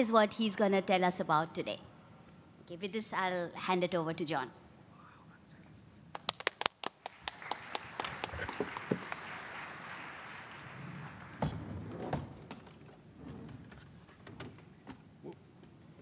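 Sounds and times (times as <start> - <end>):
audience applauding: 6.2 - 11.7.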